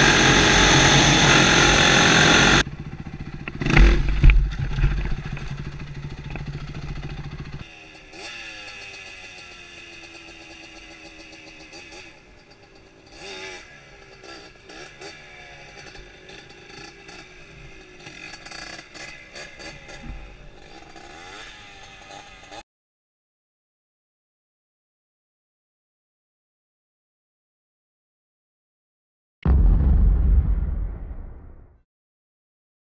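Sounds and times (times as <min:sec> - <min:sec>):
quad engine revving: 0:00.0 - 0:12.1
dirt bike engine running: 0:00.0 - 0:13.6.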